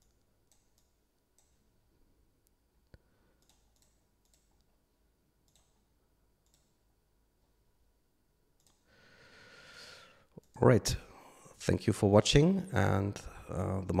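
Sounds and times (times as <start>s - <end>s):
computer mouse clicks: 0.0s - 1.6s, 2.9s - 4.7s, 5.4s - 5.8s, 6.4s - 6.8s, 8.6s - 8.8s.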